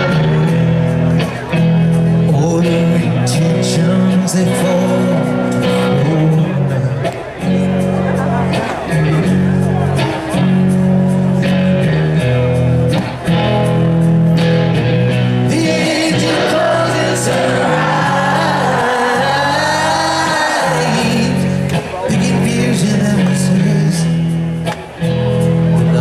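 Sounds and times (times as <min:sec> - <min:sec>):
rock band playing live: 0:00.0 - 0:26.0
male lead vocal: 0:02.1 - 0:07.1, 0:15.3 - 0:24.4, 0:25.8 - 0:26.0.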